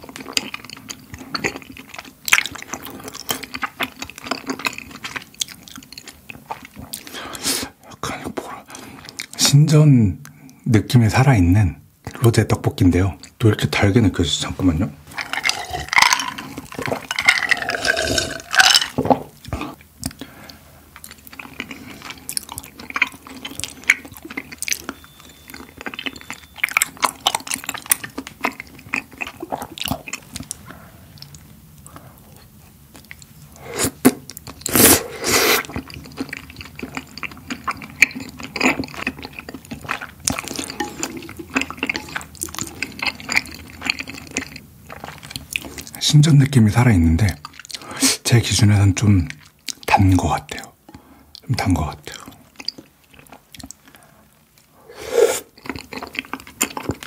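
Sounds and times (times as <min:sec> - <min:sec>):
wet chewing and slurping: 0:00.0 - 0:07.8, 0:15.1 - 0:46.0, 0:50.6 - 0:57.0
person swallowing drink: 0:15.2 - 0:19.7.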